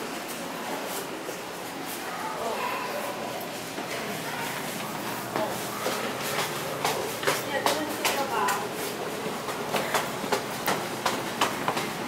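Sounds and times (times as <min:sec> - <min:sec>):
footsteps on concrete stairs: 0:04.5 - 0:12.0.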